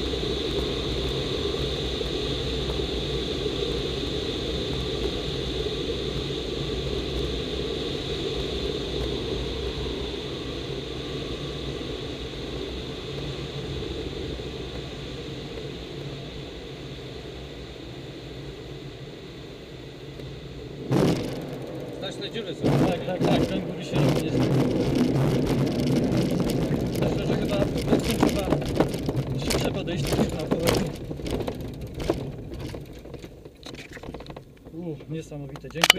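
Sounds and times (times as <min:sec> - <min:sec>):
air rushing over glider canopy: 0:00.0 - 0:34.8
wheel rumbling on grass: 0:20.8 - 0:35.9.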